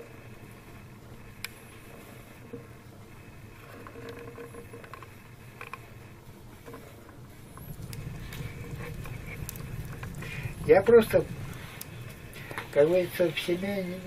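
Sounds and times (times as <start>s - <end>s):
soft rustling: 0.0s - 14.0s
faint clicks: 6.6s - 10.7s
low rumble: 7.3s - 13.2s.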